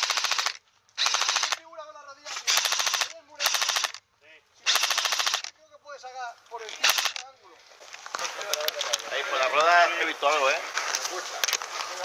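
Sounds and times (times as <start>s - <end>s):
airsoft rifle full auto fire: 0.0s - 1.6s, 2.3s - 4.0s, 4.6s - 5.5s, 6.8s - 7.2s.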